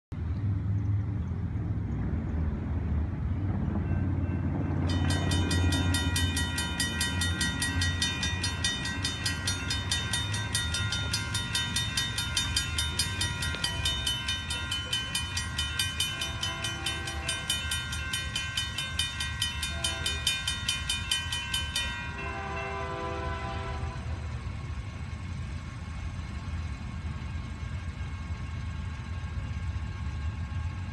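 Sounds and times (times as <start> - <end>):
railroad crossing bell ringing: 3.1 - 30.9
distant train horn blasts: 3.6 - 21.0, 21.8 - 24.8.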